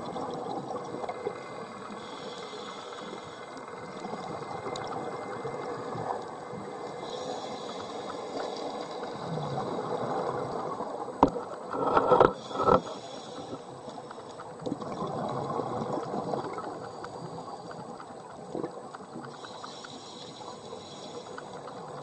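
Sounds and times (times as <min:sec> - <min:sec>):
underwater hiss and rumble: 0:00.0 - 0:22.0
exhaled bubbles gushing: 0:14.6 - 0:16.9.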